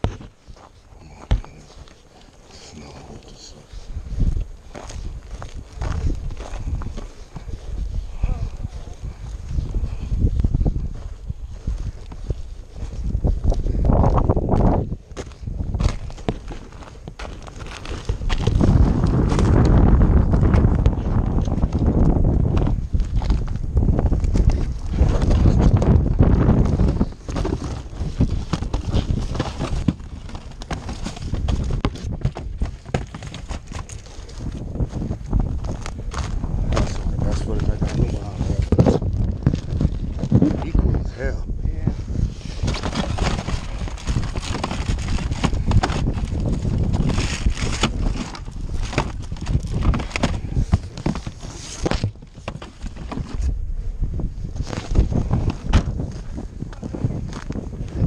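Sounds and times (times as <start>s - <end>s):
cardboard boxes rustling and knocking: 0.0s - 2.0s, 14.5s - 23.6s, 24.2s - 41.0s, 42.3s - 53.6s, 54.6s - 57.5s
footsteps crunching on snow: 0.0s - 41.2s.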